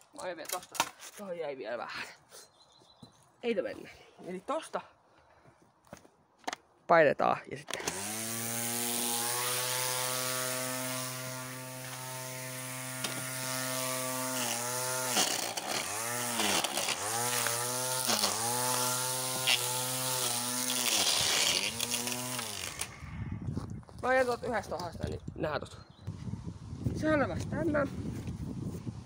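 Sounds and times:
electric string trimmer whining: 7.7 - 23.2.

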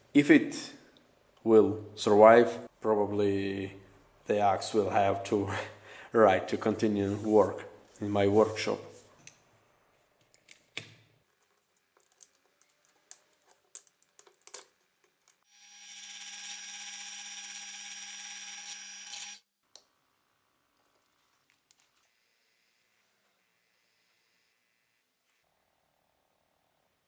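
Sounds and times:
small machine humming: 15.5 - 19.5.

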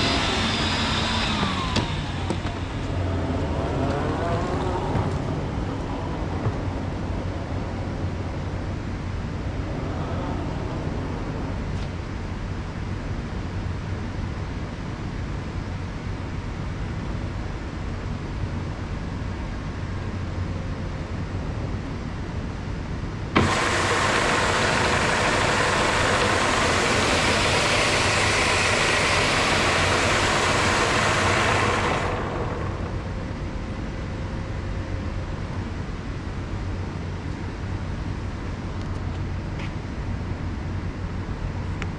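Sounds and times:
floor scrubber humming: 0.0 - 7.0, 23.4 - 33.4
vacuum motor rushing: 0.0 - 7.4, 23.4 - 33.6.

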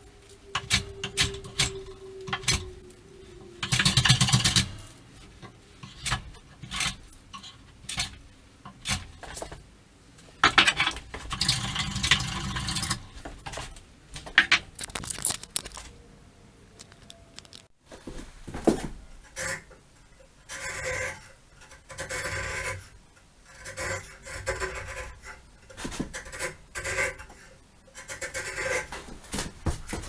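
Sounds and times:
hand plane scraping wood: 23.5 - 29.1.

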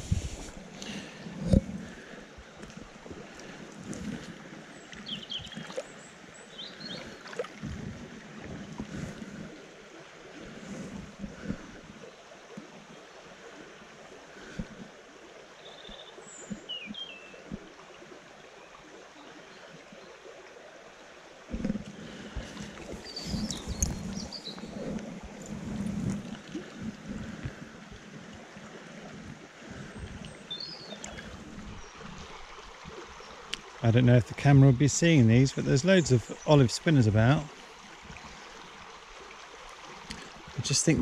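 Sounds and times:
wind buffeting microphone: 0.0 - 0.6, 21.6 - 27.9
running river water: 0.0 - 41.0.

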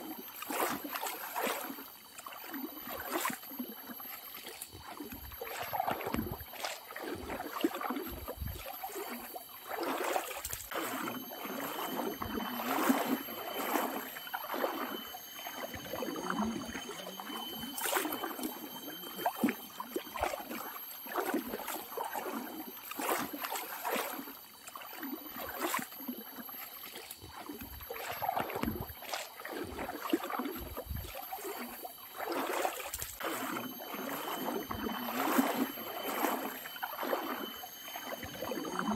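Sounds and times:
footsteps wading through river: 0.0 - 38.9
water splashing and sloshing: 0.0 - 38.9.

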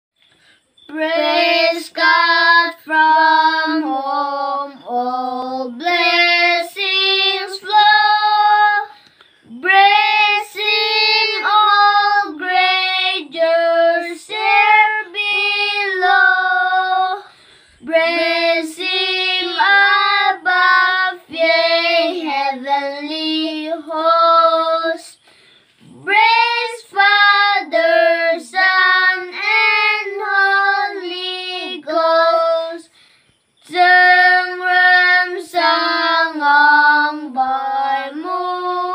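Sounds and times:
boys singing a hymn: 0.8 - 38.9.

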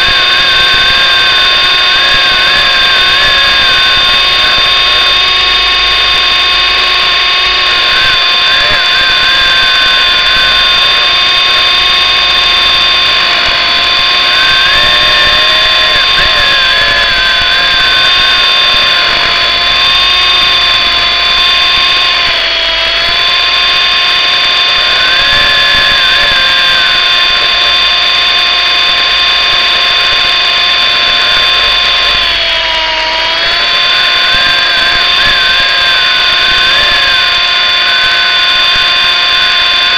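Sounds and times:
toy helicopter motor whining: 0.0 - 39.9.

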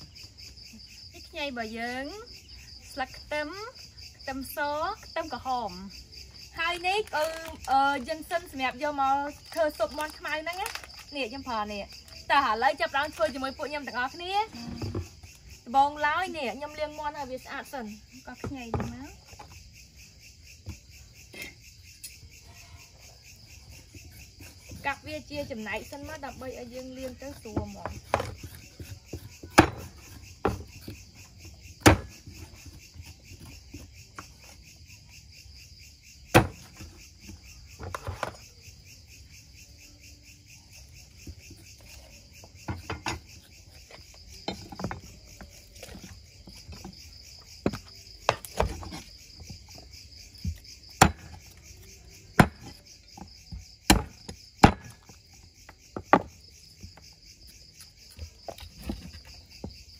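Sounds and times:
crickets chirping: 0.0 - 59.9
cleaver chopping on wooden block: 27.6 - 31.0, 31.8 - 32.5, 36.3 - 36.8, 50.4 - 51.6, 52.3 - 55.1.

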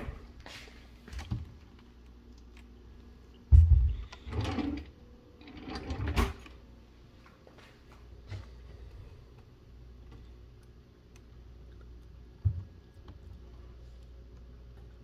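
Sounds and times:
drawer sliding rattle: 4.3 - 6.5.

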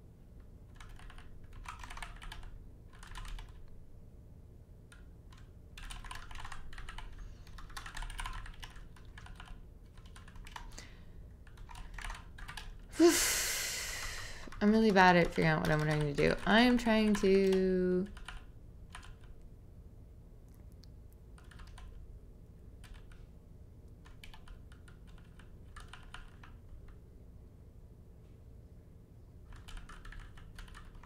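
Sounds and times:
computer keyboard typing: 0.7 - 3.7, 4.9 - 12.9, 14.4 - 19.4, 21.3 - 22.0, 22.8 - 23.2, 23.9 - 27.0, 29.5 - 31.0.

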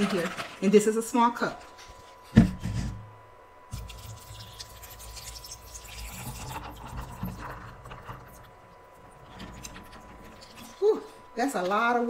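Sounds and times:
water pouring into cup: 3.7 - 11.0.

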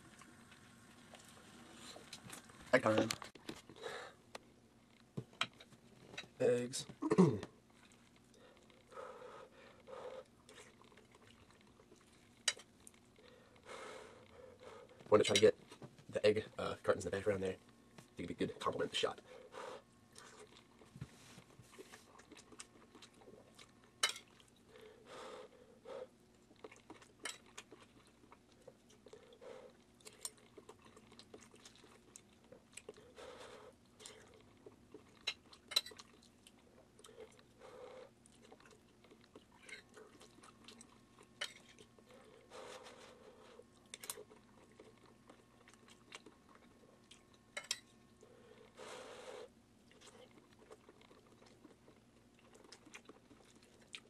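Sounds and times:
faint steady hum: 0.0 - 54.0
chewing: 7.7 - 15.1, 20.0 - 54.0.

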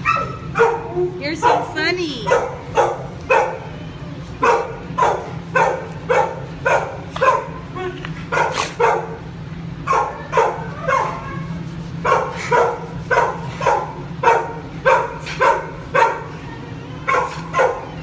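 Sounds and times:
dog yelping barks: 0.0 - 3.7, 4.4 - 7.6, 9.8 - 16.3, 17.0 - 18.0.

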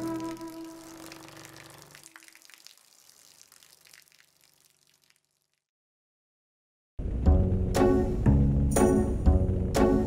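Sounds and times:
music: 0.0 - 1.1, 7.0 - 10.0
trickling and dripping water: 0.0 - 5.7.

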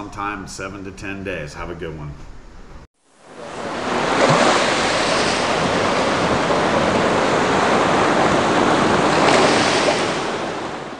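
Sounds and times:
rushing water: 3.2 - 10.9.

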